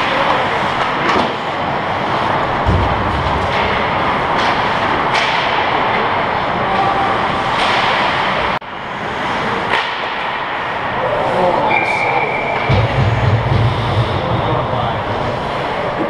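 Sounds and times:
loud rushing noise: 0.0 - 16.0
sticks and puck clacking: 2.1 - 6.9, 7.5 - 8.4, 9.6 - 10.6.

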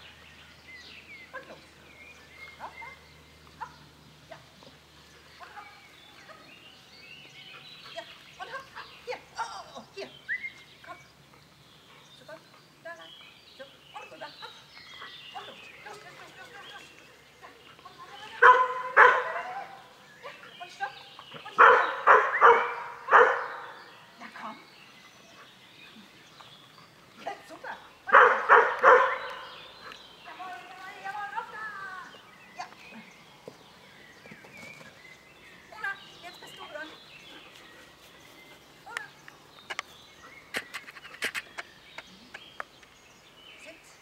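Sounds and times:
bird chirps and calls: 0.0 - 44.0
dog barking: 18.4 - 19.8, 21.6 - 23.8, 28.1 - 29.5.

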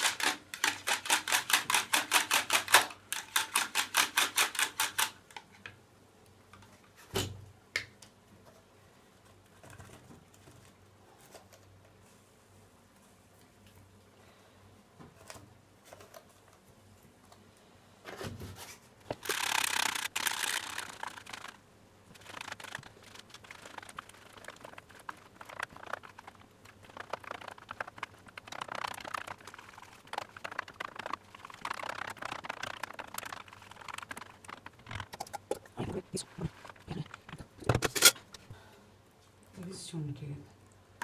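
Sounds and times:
whisk beating batter in bowl: 19.1 - 37.8.

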